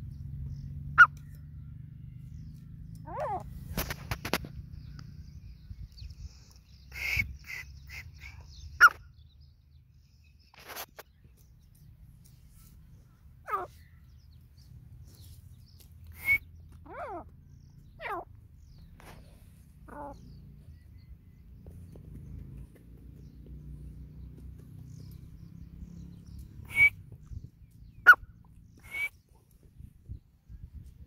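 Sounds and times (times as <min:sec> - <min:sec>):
sharp chirps: 0:26.4 - 0:27.1, 0:28.0 - 0:29.2.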